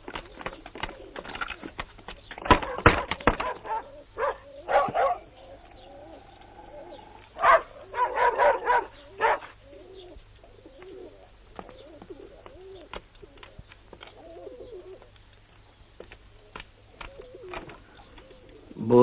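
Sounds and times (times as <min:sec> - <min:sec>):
pigeons cooing: 0:00.0 - 0:19.0
dog barking: 0:02.6 - 0:05.4, 0:07.4 - 0:09.6.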